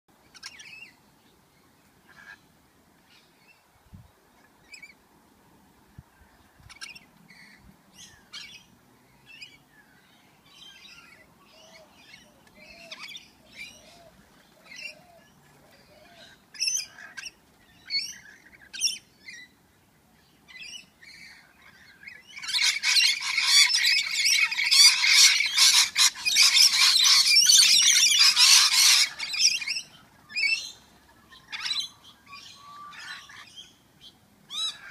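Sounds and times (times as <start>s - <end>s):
lorikeets screeching and chattering: 20.5s - 33.7s, 34.5s - 34.9s.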